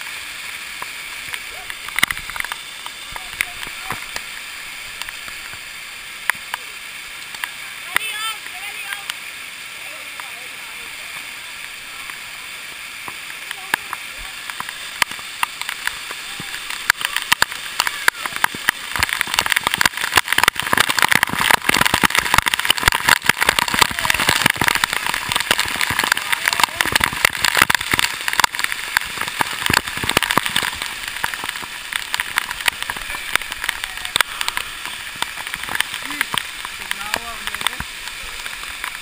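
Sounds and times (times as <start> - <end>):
rushing water: 0.0 - 39.0
droplets hitting camera housing: 0.8 - 6.6, 13.0 - 39.0.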